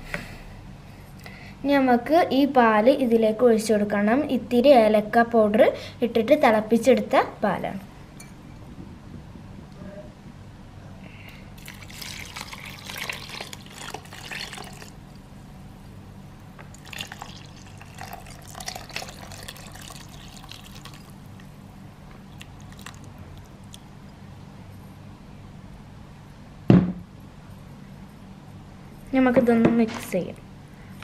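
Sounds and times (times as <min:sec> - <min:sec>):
steady low hum: 0:00.0 - 0:31.0
milk pouring and splashing: 0:11.6 - 0:15.1, 0:16.7 - 0:21.5, 0:22.2 - 0:23.8.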